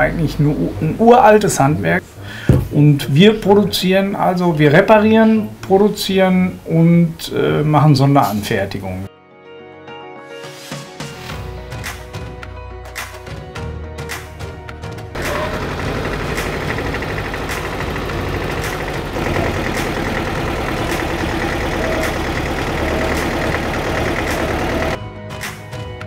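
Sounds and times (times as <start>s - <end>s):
background music: 0.0s - 26.0s
tractor engine chugging: 15.2s - 25.0s.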